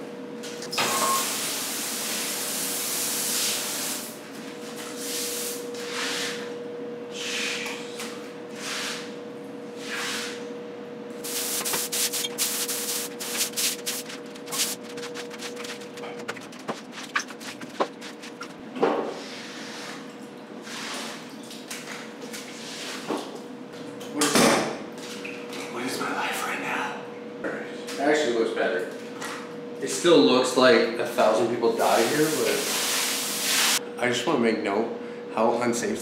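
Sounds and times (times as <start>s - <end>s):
water spraying onto tiled floor: 1.0s - 4.1s, 11.2s - 18.6s, 31.8s - 33.8s
steady hum: 10.4s - 19.4s.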